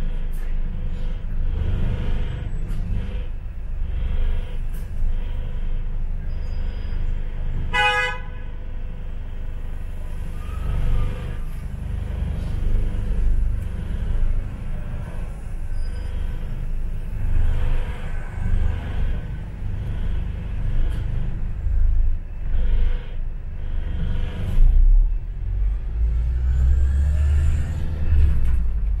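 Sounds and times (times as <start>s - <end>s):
bus engine and road rumble: 0.0s - 29.0s
vehicle horn toot: 7.7s - 8.4s.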